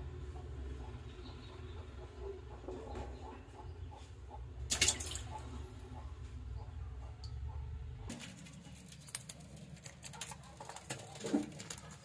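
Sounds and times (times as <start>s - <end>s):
fish flopping on wet concrete: 4.7s - 5.5s
water sloshing: 4.7s - 5.8s.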